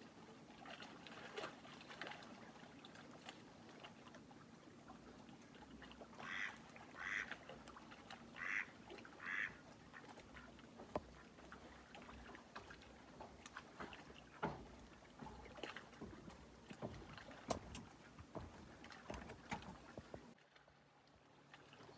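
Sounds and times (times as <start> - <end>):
water lapping at shore: 0.0 - 21.9
distant duck quacking: 6.2 - 7.4, 8.4 - 10.6.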